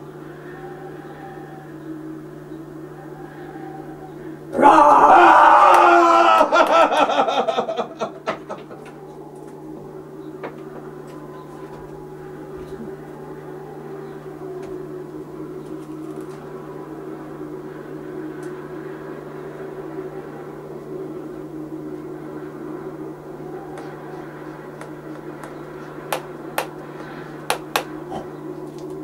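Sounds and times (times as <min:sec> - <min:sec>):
children shouting: 0:00.0 - 0:01.8, 0:02.8 - 0:15.3, 0:22.5 - 0:29.0
low hum with held tones: 0:00.0 - 0:29.0.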